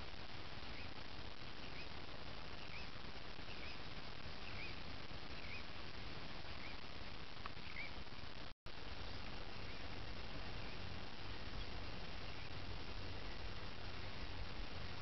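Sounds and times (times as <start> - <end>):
bird chirping: 1.6 - 3.8, 4.4 - 5.7, 6.5 - 6.8, 7.6 - 8.0.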